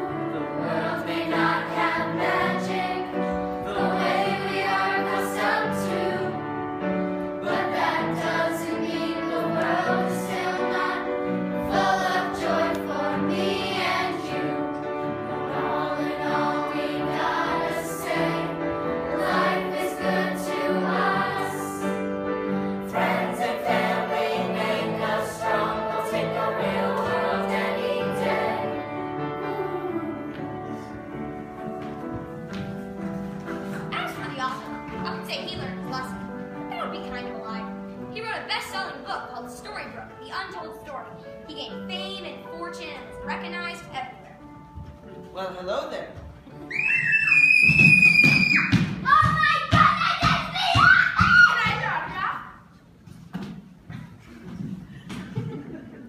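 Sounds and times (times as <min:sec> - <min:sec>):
children singing together: 0:00.0 - 0:06.6, 0:07.4 - 0:22.1, 0:22.8 - 0:30.5.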